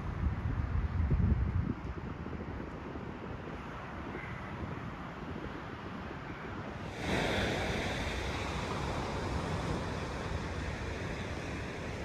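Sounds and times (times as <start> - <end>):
wind: 0.0 - 12.0
surf: 6.8 - 12.0.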